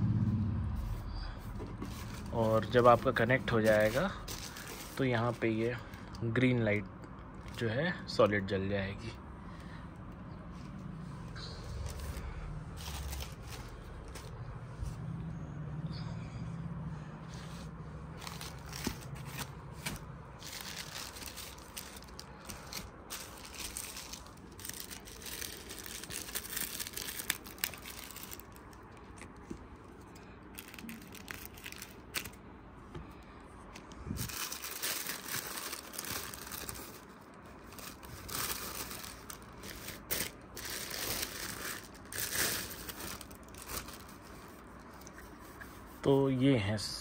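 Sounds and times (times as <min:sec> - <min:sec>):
packaging rustling: 0:01.6 - 0:05.6, 0:11.7 - 0:14.5, 0:18.1 - 0:32.4, 0:33.7 - 0:45.2.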